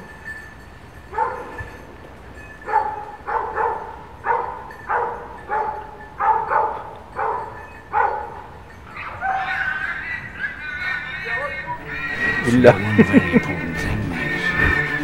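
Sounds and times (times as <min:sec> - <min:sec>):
dog barking: 0:01.1 - 0:01.6, 0:02.6 - 0:11.0.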